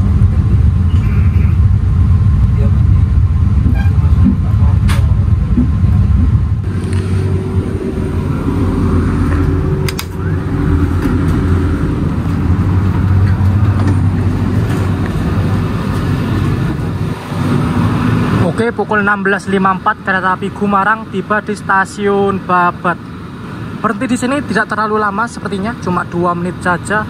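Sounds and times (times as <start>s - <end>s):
train rumbling on rails: 0.0s - 27.0s
sharp clicks: 9.8s - 10.3s.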